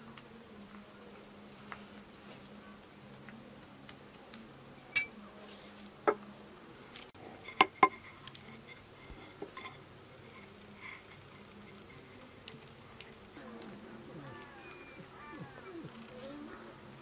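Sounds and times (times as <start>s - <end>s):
kitchenware clicks and knocks: 7.5s - 8.8s.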